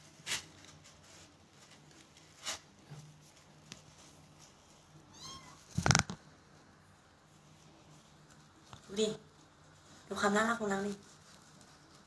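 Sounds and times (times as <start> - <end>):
kitten mewing: 5.1 - 6.2.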